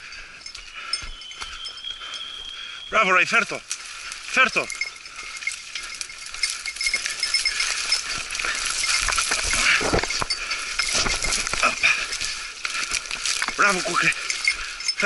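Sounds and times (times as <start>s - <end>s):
small bell jingling: 0.0s - 15.0s
brush scraping and rustling: 3.6s - 15.0s.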